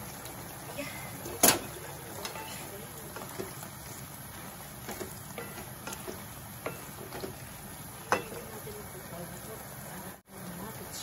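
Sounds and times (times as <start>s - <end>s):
shrimp sizzling in a frying pan: 0.0s - 11.0s
spatula scraping and tapping pan: 4.8s - 8.6s.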